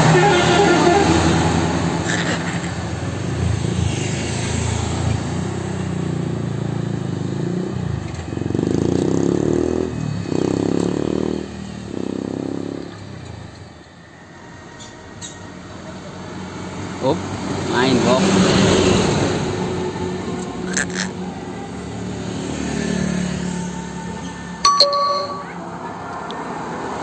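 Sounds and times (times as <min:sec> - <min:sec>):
bus horn long notes: 0:00.0 - 0:01.8
bus engine passing: 0:00.0 - 0:06.8, 0:13.7 - 0:24.6
motorcycle passing: 0:00.9 - 0:13.0.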